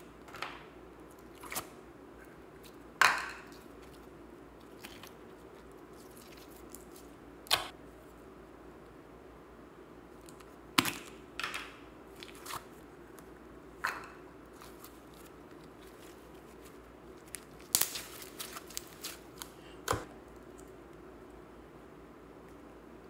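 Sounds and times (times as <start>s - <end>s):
slime popping and snapping: 17.3s - 20.0s.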